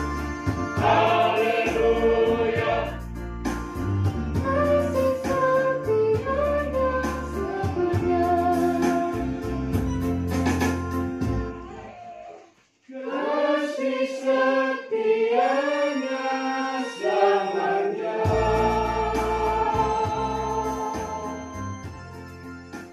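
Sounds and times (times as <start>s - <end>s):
deep bass accompaniment: 0.0s - 11.5s, 18.3s - 22.9s
choir singing in parts: 0.7s - 3.1s, 12.8s - 21.9s.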